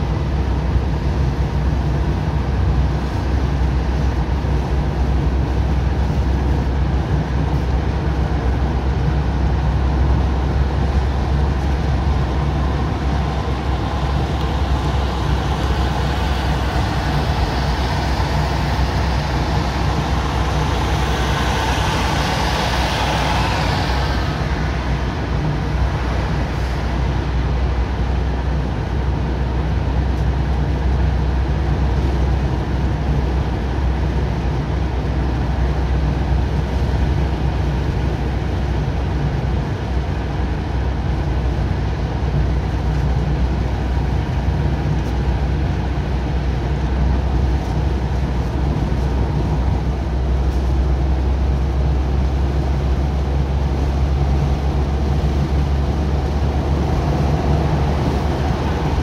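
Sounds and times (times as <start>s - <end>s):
engine and tyre rumble: 0.0s - 59.0s
wind and road hiss: 0.0s - 59.0s
loud rushing hiss: 11.4s - 27.0s.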